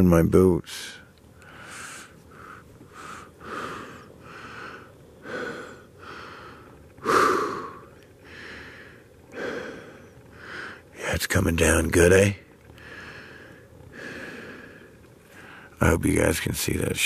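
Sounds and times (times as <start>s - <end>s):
man breathing heavily: 1.4s - 10.9s, 12.8s - 15.8s.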